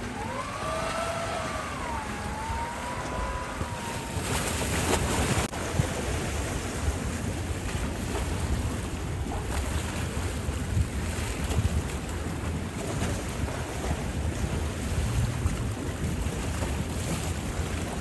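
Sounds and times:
electric outboard motor whining: 0.0 - 5.5
waves: 0.0 - 18.0
wind buffeting microphone: 0.0 - 18.0.

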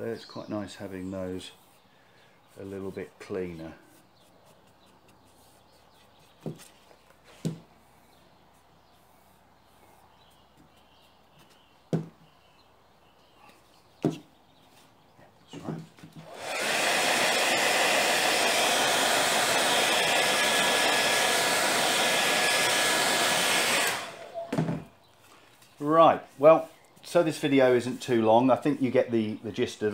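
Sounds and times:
hair dryer blowing: 16.2 - 24.8.

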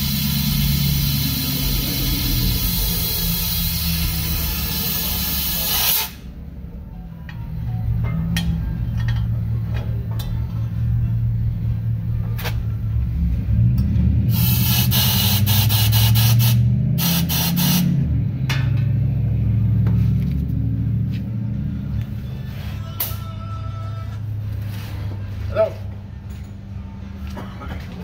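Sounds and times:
loud hissing blasts: 0.0 - 6.3, 14.3 - 18.0
gas torch rumbling: 0.0 - 6.4, 14.2 - 18.9.

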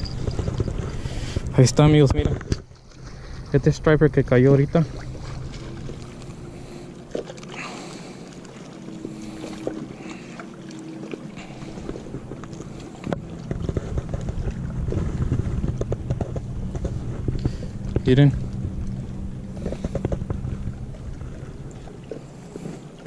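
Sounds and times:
wind buffeting microphone: 0.0 - 6.8, 11.7 - 22.0
steady low hum: 0.0 - 23.0.

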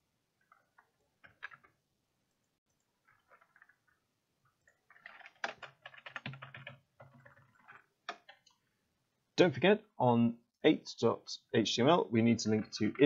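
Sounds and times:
keyboard typing: 4.6 - 8.6.

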